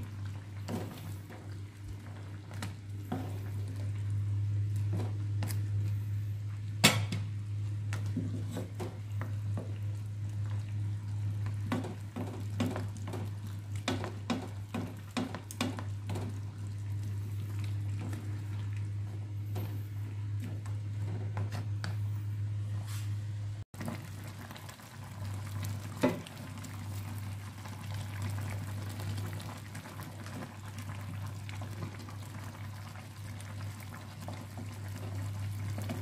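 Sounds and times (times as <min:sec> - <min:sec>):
steady low hum: 0:00.0 - 0:23.7.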